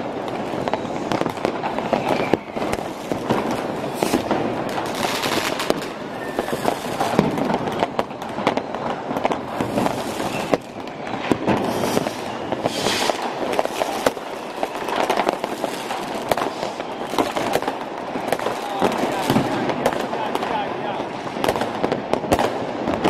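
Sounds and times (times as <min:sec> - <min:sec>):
firework hiss: 0:00.0 - 0:23.0
fireworks bangs and crackles: 0:00.0 - 0:23.0.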